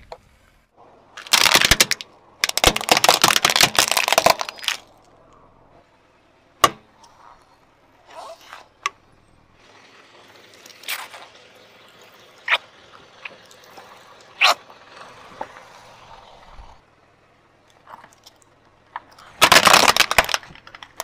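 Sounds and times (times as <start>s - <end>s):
plastic toy crunching under tyre: 1.2s - 5.2s, 19.0s - 21.0s.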